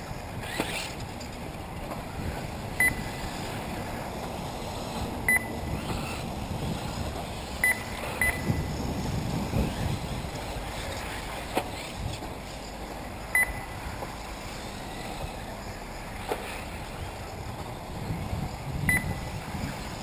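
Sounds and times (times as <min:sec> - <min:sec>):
rc cars racing: 0:00.0 - 0:20.0
short high electronic beeps: 0:05.3 - 0:05.7, 0:07.6 - 0:08.7, 0:13.4 - 0:13.8, 0:18.9 - 0:19.2.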